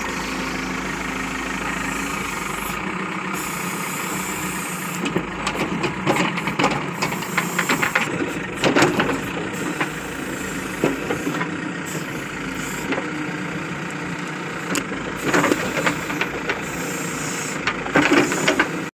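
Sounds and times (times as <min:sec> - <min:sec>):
diesel engine running: 0:00.0 - 0:18.9
sharp clicks and knocks: 0:05.0 - 0:10.0.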